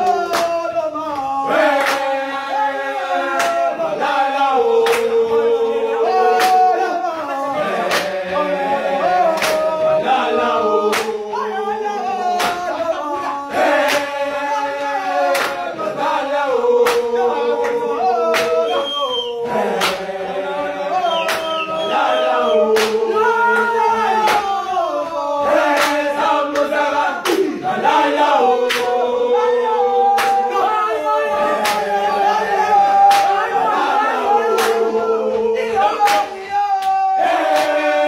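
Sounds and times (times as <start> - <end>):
men singing a call-and-response chant: 0.0 - 38.0.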